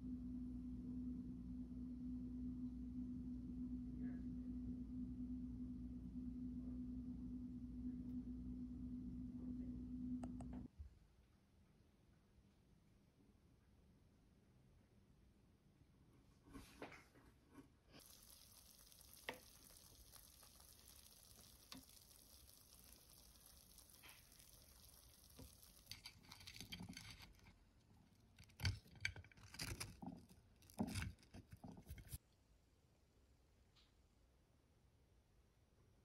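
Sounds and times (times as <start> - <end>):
food sizzling in air fryer: 18.0 - 27.5.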